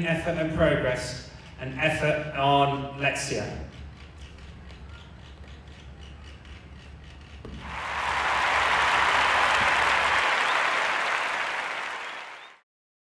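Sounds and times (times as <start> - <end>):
audience applauding: 7.6 - 12.6.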